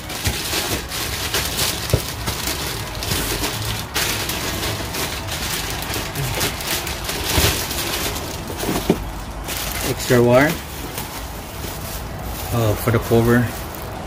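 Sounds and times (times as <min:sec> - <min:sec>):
plastic bags crinkling: 0:00.0 - 0:14.0.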